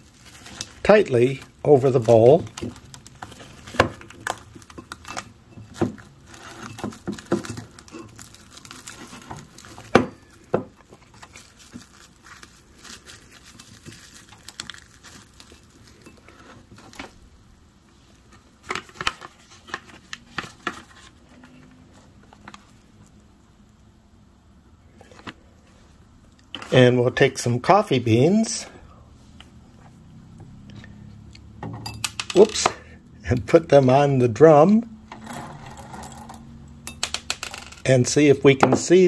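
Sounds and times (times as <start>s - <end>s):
plastic cling wrap crinkling: 0.0s - 17.3s.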